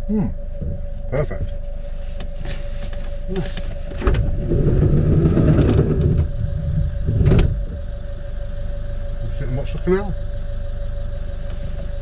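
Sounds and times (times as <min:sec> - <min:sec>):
sliding door clunk: 0:03.9 - 0:07.8
sliding door rumbling on runner: 0:03.9 - 0:07.9.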